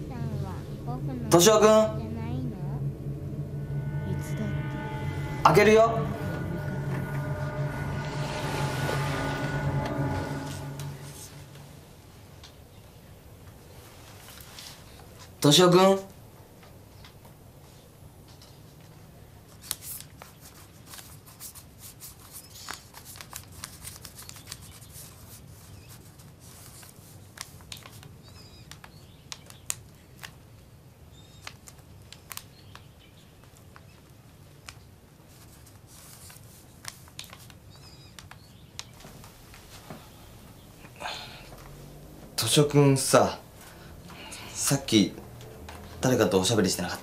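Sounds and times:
steady low hum: 0.0s - 12.2s, 39.0s - 47.0s.

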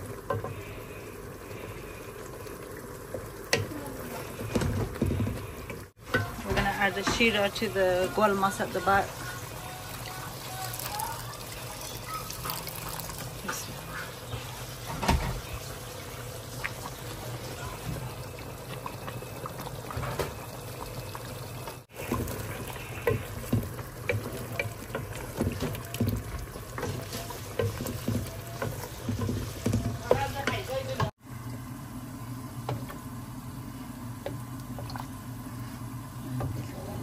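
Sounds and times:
liquid pouring in cooking pot: 7.9s - 14.8s, 15.5s - 30.5s.

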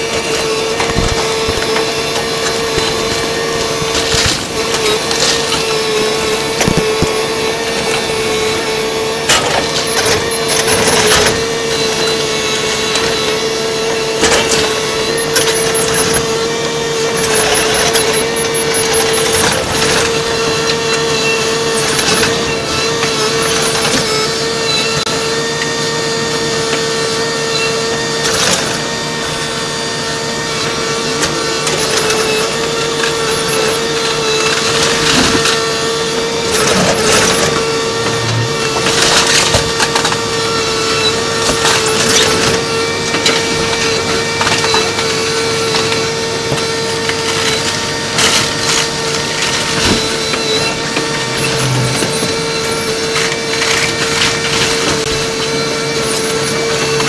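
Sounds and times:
masonry and timber crashing: 0.0s - 7.4s
high-pitched excavator engine drone: 0.0s - 57.0s.

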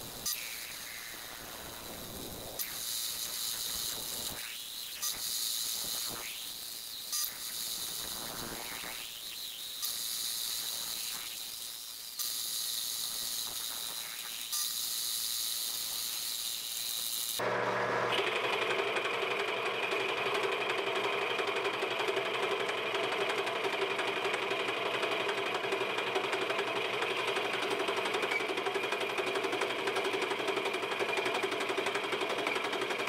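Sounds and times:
milling machine cutting metal: 18.2s - 33.0s.

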